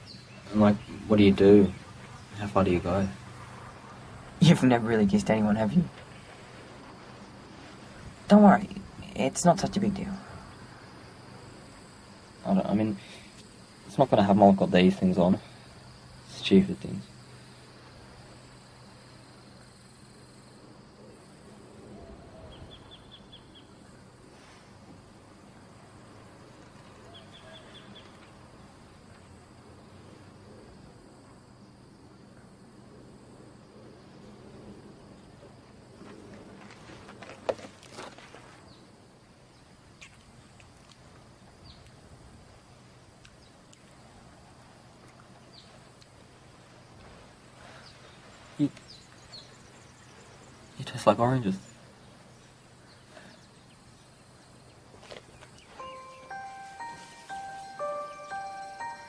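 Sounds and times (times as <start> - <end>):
crickets chirping: 0.0 - 59.0
short high chirps: 55.8 - 59.0.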